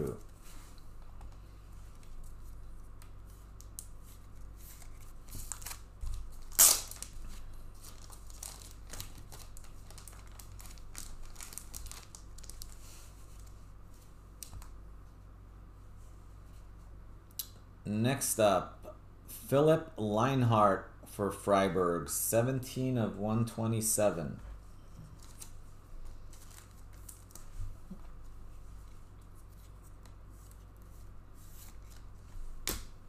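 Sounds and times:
packaging ripping: 0:05.5 - 0:07.2, 0:07.8 - 0:12.8
packaging crinkling and clicking: 0:07.9 - 0:12.8.

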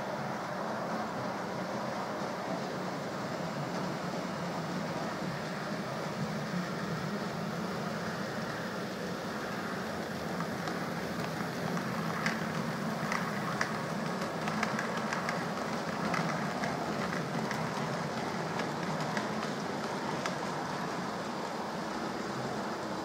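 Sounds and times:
model locomotive hum: 0:00.0 - 0:23.0
wheels clicking over rail joints: 0:05.0 - 0:23.0.

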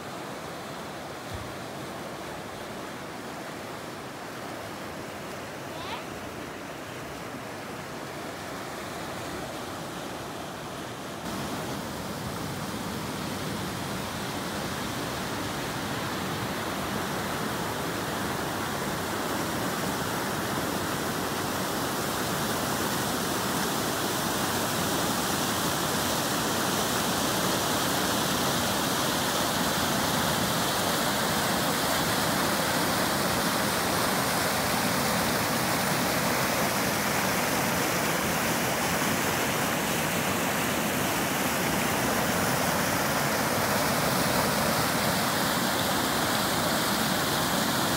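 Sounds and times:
creek rushing over rocks: 0:00.0 - 0:47.9.

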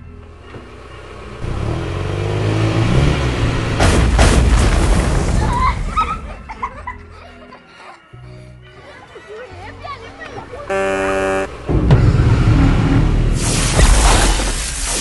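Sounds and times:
sharp bangs: 0:03.6 - 0:05.4, 0:10.8 - 0:15.0
deep rumble: 0:11.6 - 0:14.2.

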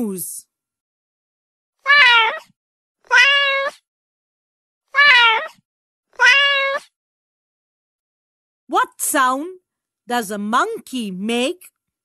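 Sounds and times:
cat meowing: 0:01.8 - 0:03.9, 0:04.9 - 0:07.0.

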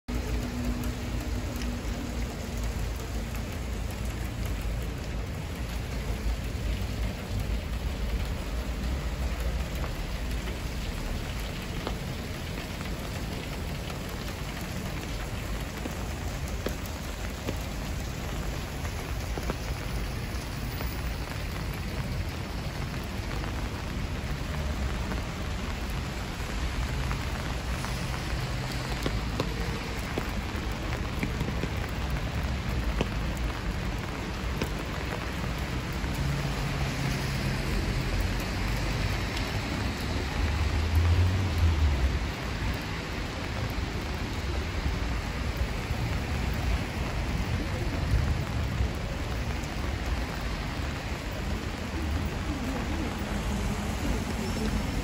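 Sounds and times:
rain on pavement: 0:00.0 - 0:55.0.

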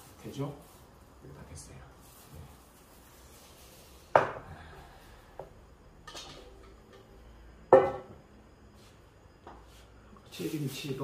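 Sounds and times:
metallic clanks of cookware: 0:06.0 - 0:07.1.

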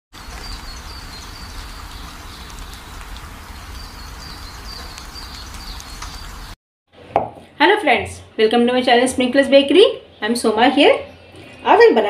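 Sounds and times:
bird chirping: 0:00.2 - 0:06.6.

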